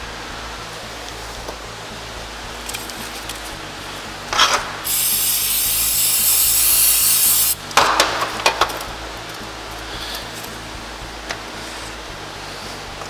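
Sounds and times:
aerosol spray hiss: 4.8s - 7.6s.

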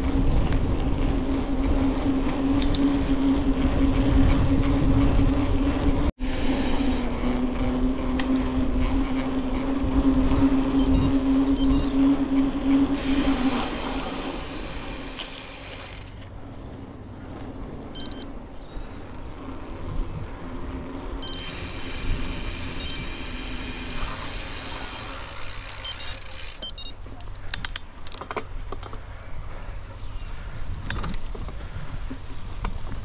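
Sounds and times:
bicycle tyre and wind rumble: 0.0s - 33.0s
sharp clicks: 25.5s - 29.0s.

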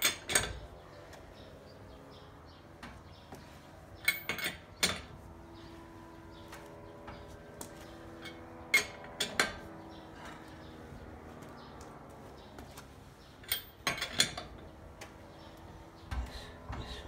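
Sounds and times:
lug wrench clinking on lug nuts: 0.0s - 0.7s, 4.0s - 5.2s, 8.2s - 10.0s, 13.4s - 14.8s.

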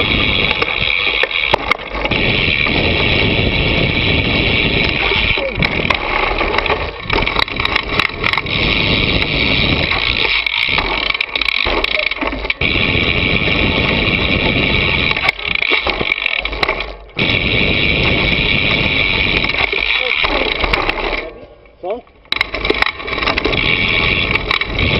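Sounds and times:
bike rattling over rough ground: 0.0s - 24.9s
wind rushing over microphone: 2.0s - 10.2s, 12.6s - 15.6s, 17.2s - 19.7s, 23.2s - 24.9s.

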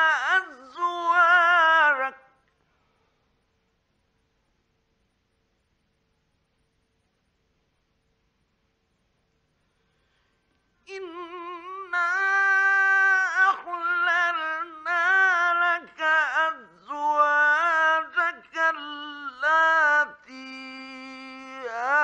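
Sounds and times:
man chanting melodically: 0.0s - 2.3s, 10.9s - 22.0s.

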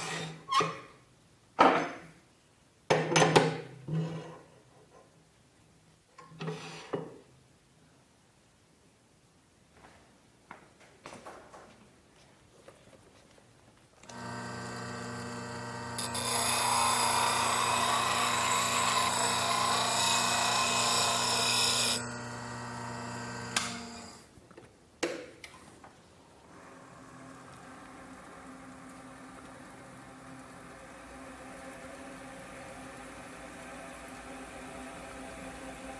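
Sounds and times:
bench grinder humming: 14.0s - 24.2s, 26.6s - 35.9s
lathe humming: 14.0s - 24.2s, 26.6s - 35.9s
harsh grinding of gouge: 14.2s - 22.0s.

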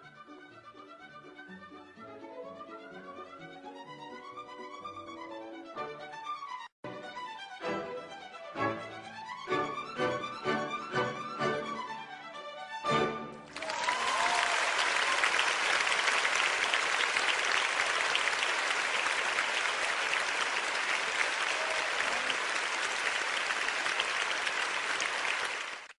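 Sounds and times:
audience clapping: 13.4s - 26.0s.

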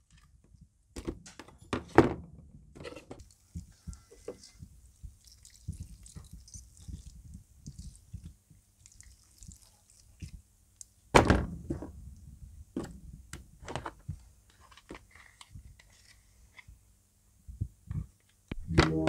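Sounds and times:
loud thunk: 11.2s - 11.8s.

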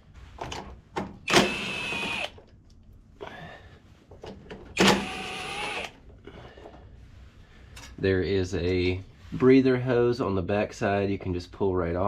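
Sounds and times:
cordless drill spinning: 1.3s - 2.4s, 4.8s - 6.0s.

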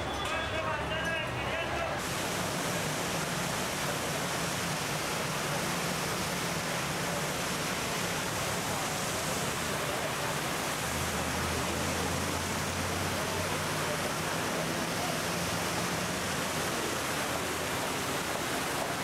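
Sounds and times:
fountain water splashing: 0.0s - 19.0s.

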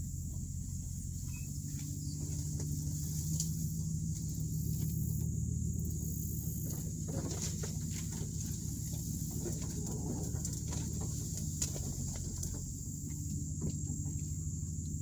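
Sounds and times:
pickup engine running at low speed: 0.0s - 15.0s
small knocks and rustles: 6.5s - 14.9s.

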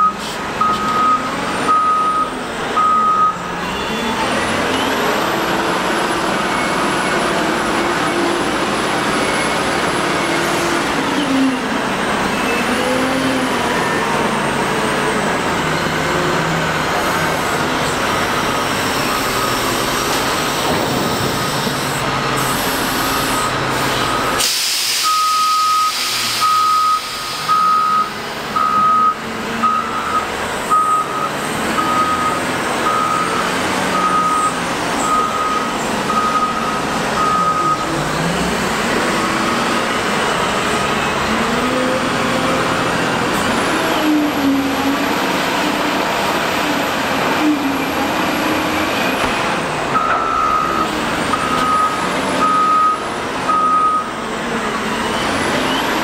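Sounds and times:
reversing alarm beeping: 0.0s - 5.0s, 23.2s - 24.4s, 25.0s - 37.9s, 50.0s - 54.2s
diesel engine running: 0.0s - 56.0s.

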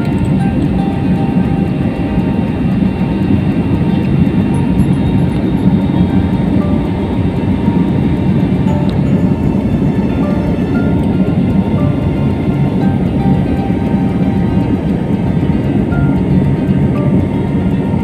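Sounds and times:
airliner cabin engine rumble: 0.0s - 18.0s.

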